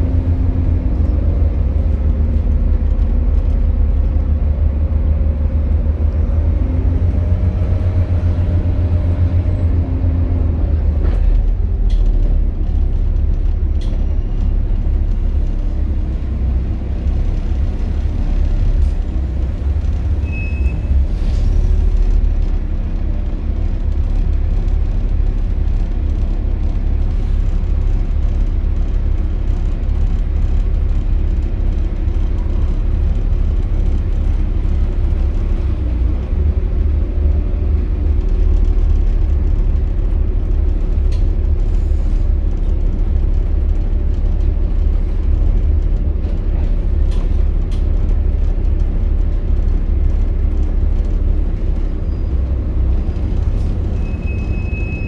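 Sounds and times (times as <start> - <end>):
bus diesel engine rumbling: 0.0 - 55.0.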